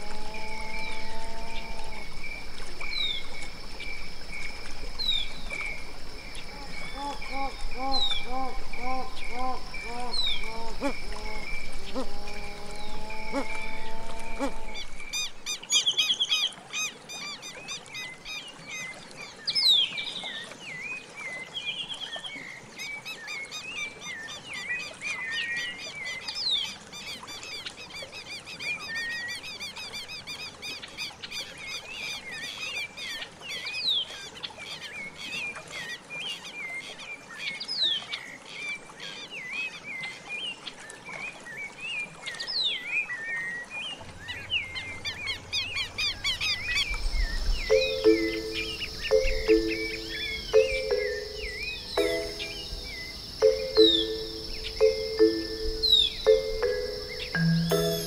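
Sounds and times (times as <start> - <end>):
birds chirping: 1.6 - 15.6, 44.2 - 58.0.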